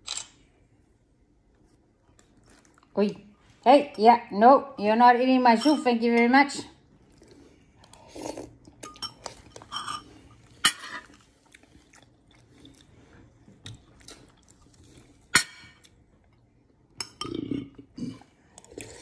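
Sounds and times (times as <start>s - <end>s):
spoon clinking against bowl: 5.5s - 6.0s
eating noises: 10.4s - 16.4s.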